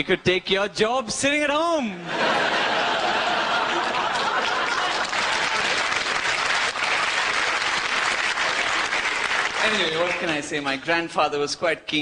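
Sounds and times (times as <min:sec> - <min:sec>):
audience applauding: 0:02.6 - 0:10.8.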